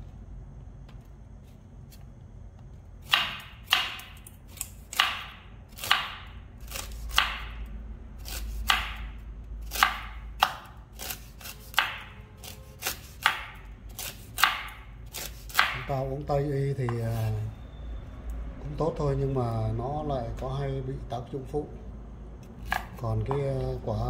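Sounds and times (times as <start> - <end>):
knife chopping fruit: 3.0 - 16.0, 16.8 - 17.4, 22.4 - 23.8.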